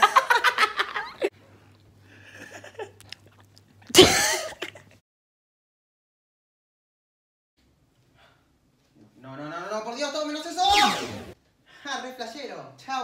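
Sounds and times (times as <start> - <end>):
young man laughing loudly: 0.0 - 1.3.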